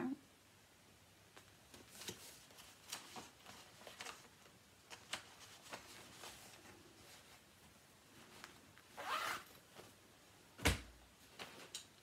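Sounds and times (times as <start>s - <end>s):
packaging rustling: 1.7s - 7.4s.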